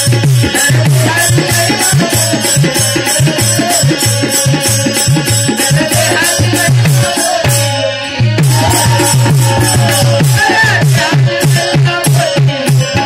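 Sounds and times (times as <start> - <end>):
hand drum rhythm: 0.0 - 13.0
wavering melody: 8.2 - 11.3.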